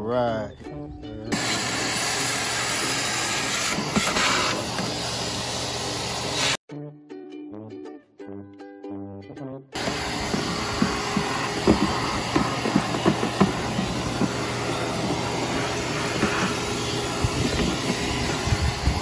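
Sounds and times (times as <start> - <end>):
vacuum cleaner running: 1.3 - 6.6, 9.8 - 19.0
vacuum nozzle knocking on plastic: 9.8 - 19.0.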